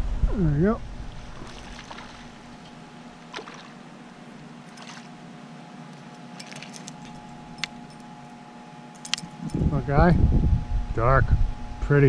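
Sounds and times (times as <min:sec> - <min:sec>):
faint steady hum: 0:00.0 - 0:12.0
fishing tackle clicks and clinks: 0:05.9 - 0:08.1, 0:09.0 - 0:09.6.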